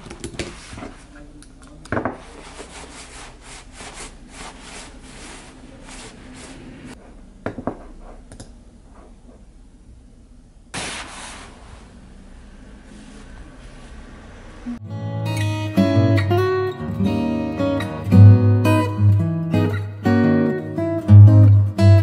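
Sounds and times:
hands rubbing together: 2.2 - 7.0
nylon jacket sleeves rustling: 2.2 - 7.1, 10.7 - 12.2.

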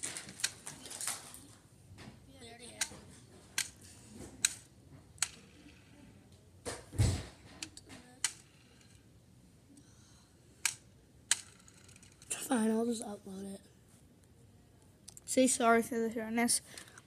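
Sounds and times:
sharp clicks and taps: 2.7 - 3.0
thump and rustle: 6.7 - 7.6.

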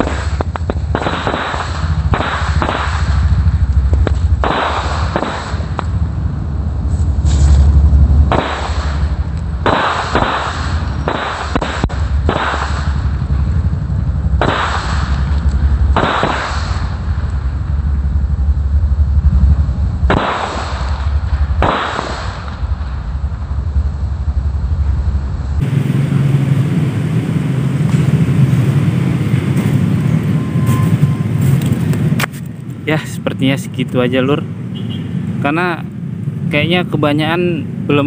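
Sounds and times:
firecracker hiss: 0.0 - 3.4, 6.8 - 13.1, 14.4 - 15.4, 16.0 - 17.1, 20.2 - 22.7
firecrackers popping and crackling: 0.0 - 6.0, 6.9 - 17.6, 20.0 - 23.5, 27.8 - 33.2
low rumble: 0.0 - 38.0.

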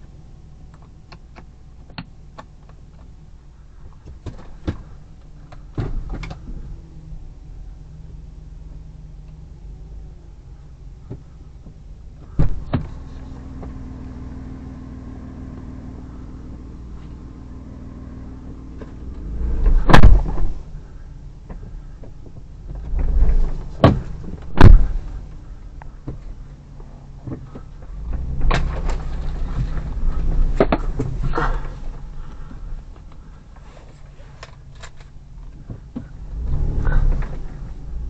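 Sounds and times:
car engine low hum: 0.0 - 38.0
car body thumps and knocks: 4.1 - 4.9, 5.7 - 6.6, 11.0 - 13.0, 18.8 - 20.7, 21.5 - 25.3, 27.2 - 32.6.

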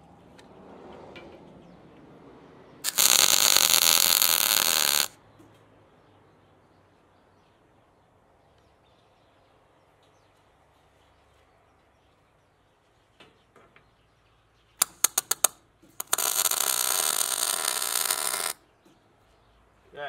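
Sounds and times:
steady welding arc: 2.9 - 5.1, 14.8 - 18.6
welding arc strikes: 2.9 - 5.1, 14.8 - 18.6.

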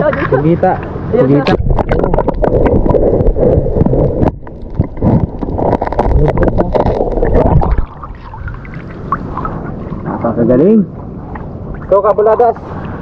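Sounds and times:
wind rumbling on microphone: 0.0 - 13.0
seawater sloshing and splashing: 4.8 - 10.4.

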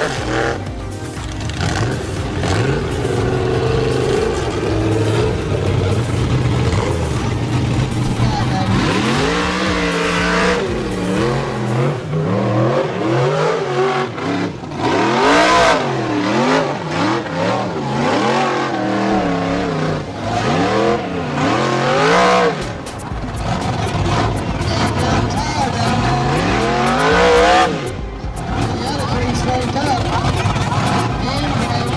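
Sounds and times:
buggy engine revving hard: 0.0 - 31.9.

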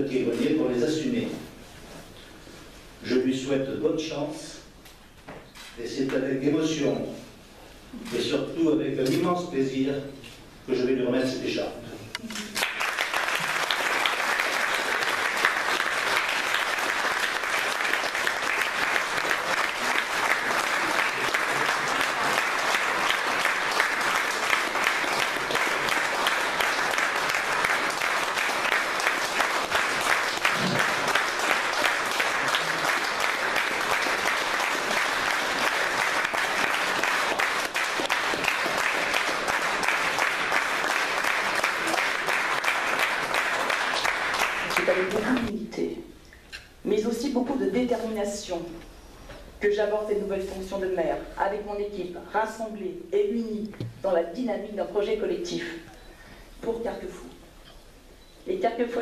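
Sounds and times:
crowd applauding: 12.3 - 45.5.

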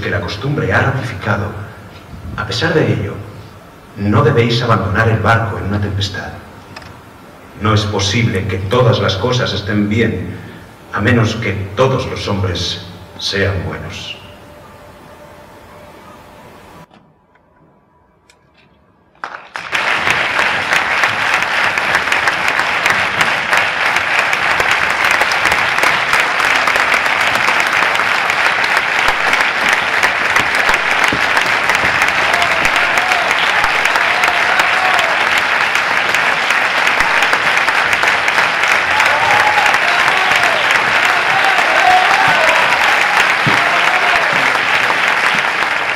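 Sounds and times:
audience applauding: 19.2 - 45.9.

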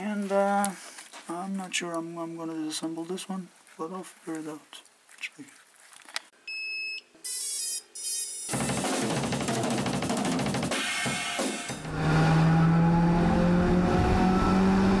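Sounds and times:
music with drum-kit beat: 8.5 - 11.9.

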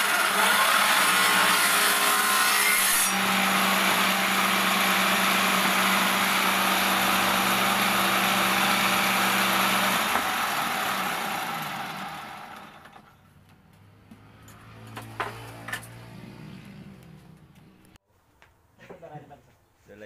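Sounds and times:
circular saw motor hum: 0.0 - 13.0.

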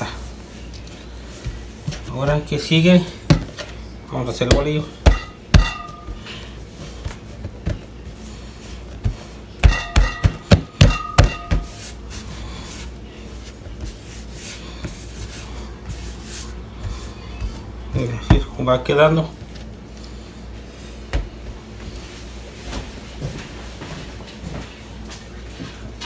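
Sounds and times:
dough rubbing and scuffing: 0.0 - 25.9
dough knocking on work surface: 4.4 - 6.2, 9.0 - 11.9.

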